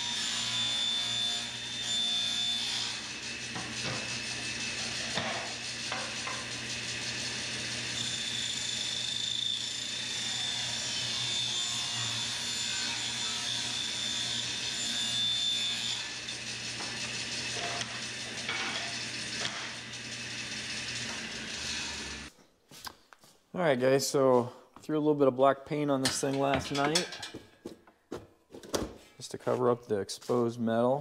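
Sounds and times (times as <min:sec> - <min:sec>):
saw blade cutting wood: 0:00.0 - 0:22.3
table saw motor hum: 0:00.0 - 0:22.3.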